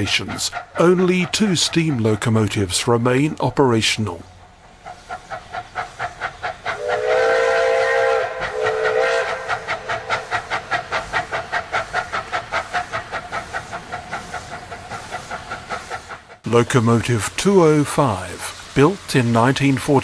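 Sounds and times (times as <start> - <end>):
steam locomotive chuffing: 0.0 - 20.0
steam whistle blasts: 6.8 - 9.7.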